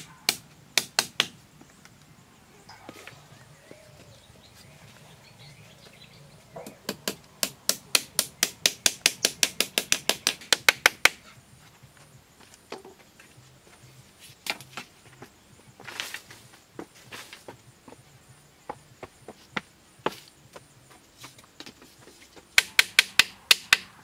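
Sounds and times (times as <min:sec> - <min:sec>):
tool knocking on bamboo: 0:00.3 - 0:01.4, 0:06.6 - 0:11.2, 0:22.5 - 0:23.9.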